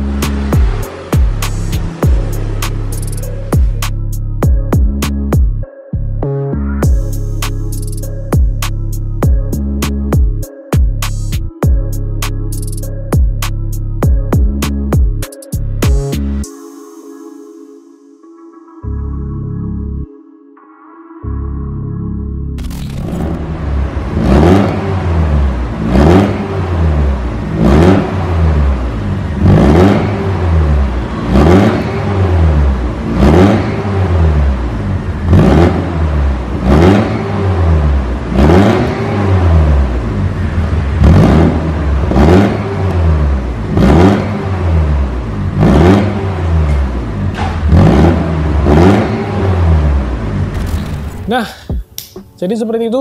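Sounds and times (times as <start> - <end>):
car engine revving loudly: 0.0 - 3.9, 22.6 - 51.0.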